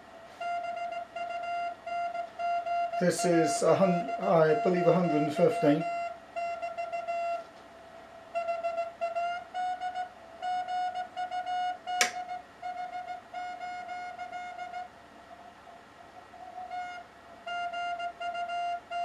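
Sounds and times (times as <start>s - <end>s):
morse code beeps: 0.4s - 7.2s
sharp click: 12.0s - 12.2s.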